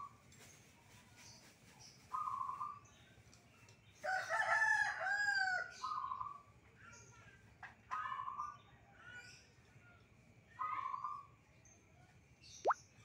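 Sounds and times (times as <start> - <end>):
rooster crowing: 4.0 - 5.7.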